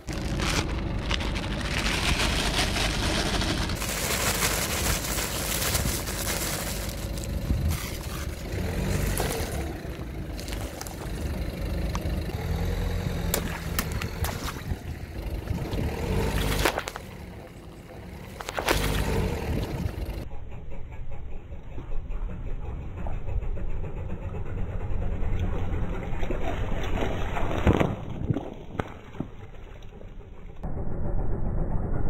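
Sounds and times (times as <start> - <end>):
plastic bag rustling: 0.0 - 11.4
tyre crushing dried petals: 0.0 - 11.4
car engine running: 0.0 - 26.7.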